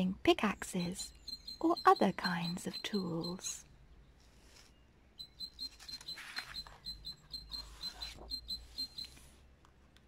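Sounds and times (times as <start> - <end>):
rapid high-pitched chirps: 0.7 - 3.6, 5.2 - 9.2
book pages turning: 5.6 - 6.8.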